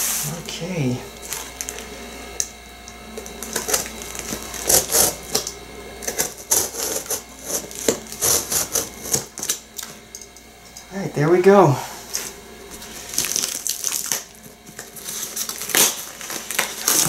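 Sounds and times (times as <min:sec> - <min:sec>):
cardboard box and tape crinkling: 0:03.2 - 0:09.6, 0:12.1 - 0:17.0.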